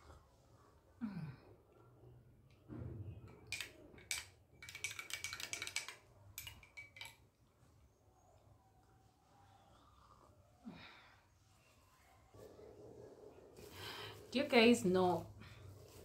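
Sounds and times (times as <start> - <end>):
spoon clinking in a cup: 3.6 - 7.2.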